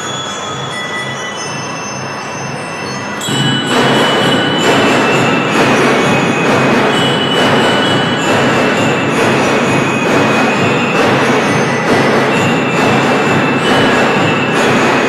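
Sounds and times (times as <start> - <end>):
bell lyres ringing: 0.0 - 15.0
marching drums: 3.2 - 15.0.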